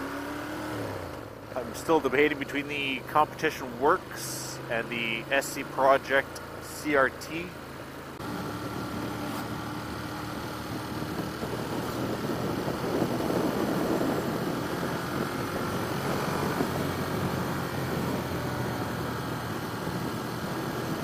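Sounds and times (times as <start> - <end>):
motorcycle engine cruising: 0.0 - 21.0
wind noise on microphone: 8.6 - 21.0.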